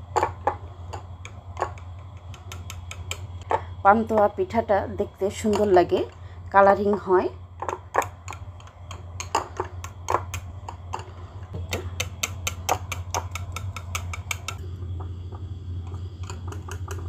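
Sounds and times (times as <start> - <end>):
low hum: 0.0 - 17.0
wire whisk clicking against glass bowl: 1.6 - 3.3, 11.7 - 14.6.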